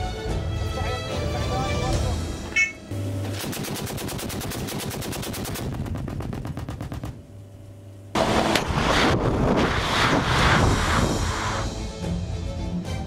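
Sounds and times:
cannon firing rapid shots: 3.4 - 7.3
loud dense blast of noise: 8.2 - 11.9.

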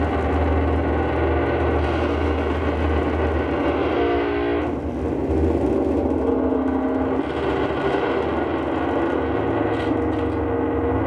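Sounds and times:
constant low hum: 0.0 - 11.0
electric guitar noise drone: 0.0 - 11.0.

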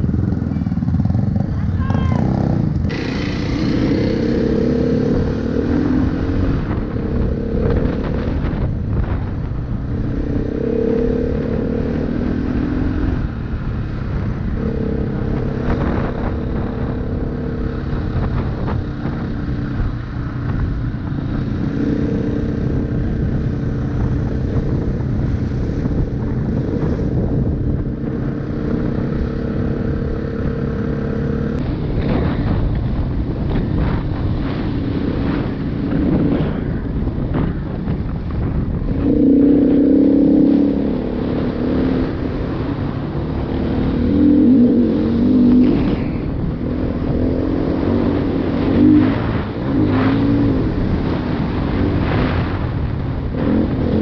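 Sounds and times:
dirt bike engine revving: 2.2 - 9.2, 38.9 - 52.7.

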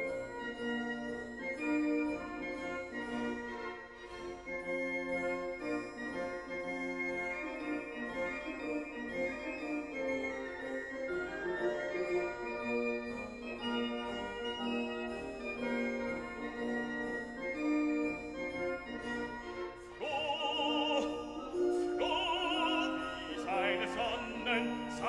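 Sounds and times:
operatic singing voice: 20.0 - 25.0.

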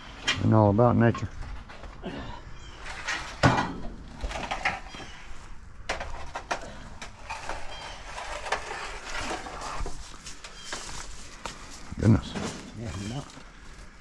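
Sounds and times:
sharp knocks and clunks: 3.3 - 5.1.

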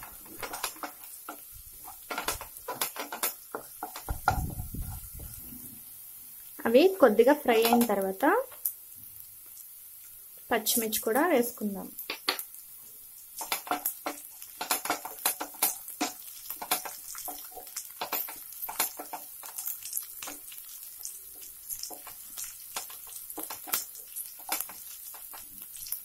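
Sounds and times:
wooden spatula scraping a pan: 0.0 - 5.6, 13.4 - 20.8
aromatics sizzling in hot oil: 0.0 - 26.0.

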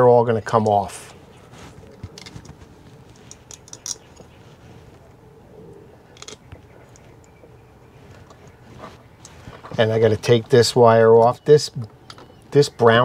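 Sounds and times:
metal-on-metal handling clicks: 3.2 - 4.3, 6.2 - 6.5.

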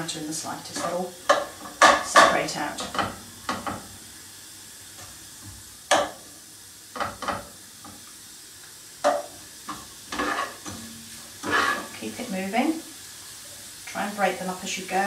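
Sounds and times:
bacon and onion sizzling: 0.0 - 15.0
spatula scraping and knocking pan: 0.7 - 4.0, 5.9 - 6.2, 6.9 - 8.0, 9.0 - 12.0.

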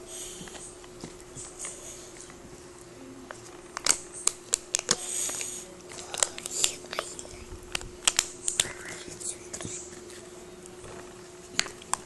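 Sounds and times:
foil crinkling: 3.4 - 10.2.

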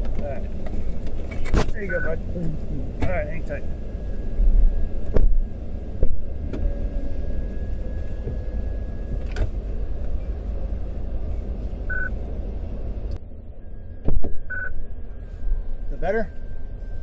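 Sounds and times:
car engine idling: 0.0 - 17.0
short electronic beep: 13.6 - 17.0.

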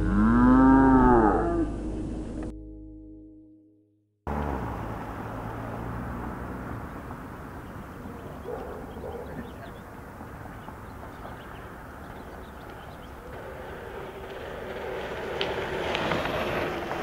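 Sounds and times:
low hum: 0.0 - 5.5
bikes rolling on asphalt: 4.3 - 17.0.

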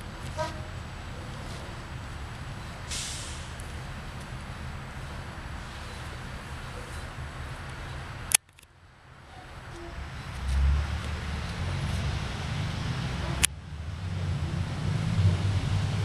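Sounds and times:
low outdoor rumble: 0.0 - 16.0
sharp clicks: 7.7 - 8.7.

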